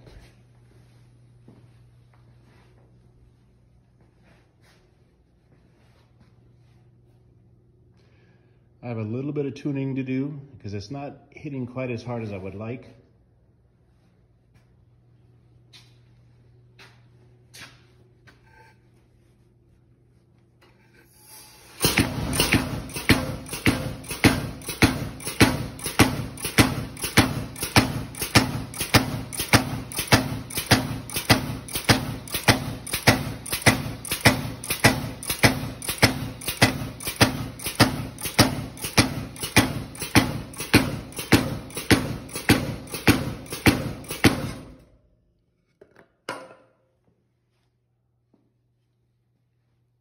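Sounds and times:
power hammer striking wood: 21.3s - 44.9s.

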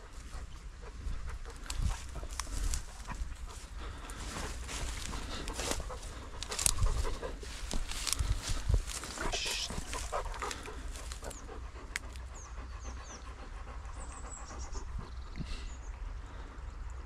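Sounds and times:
footsteps through dry grass: 0.0s - 12.3s.

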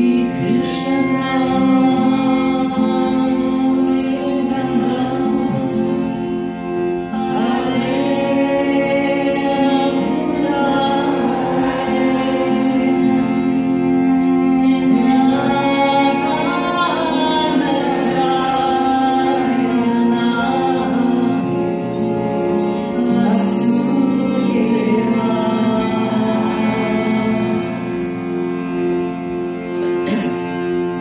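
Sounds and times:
bowed cello: 0.0s - 31.0s
sitar: 0.0s - 31.0s
steady drone: 0.0s - 31.0s
person singing a mantra: 22.6s - 28.0s.

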